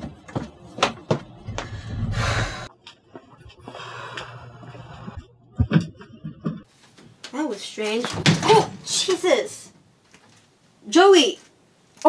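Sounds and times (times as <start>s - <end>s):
footsteps on wooden stairs: 0.0s - 1.8s
person breathing heavily: 1.5s - 2.8s, 3.6s - 5.2s.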